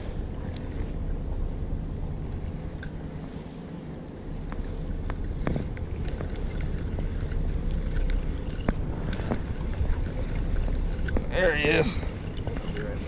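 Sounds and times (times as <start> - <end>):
boat engine rumble: 0.0 - 13.0
wind on microphone: 4.3 - 13.0.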